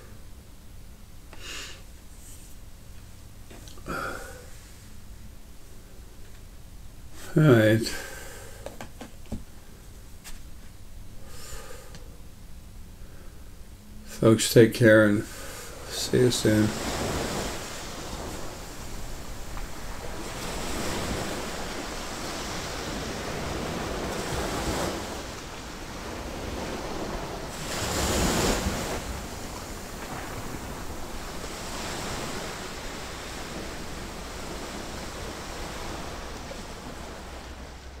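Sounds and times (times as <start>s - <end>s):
ocean surf washing onto shore: 3.7s - 4.8s, 14.1s - 38.0s.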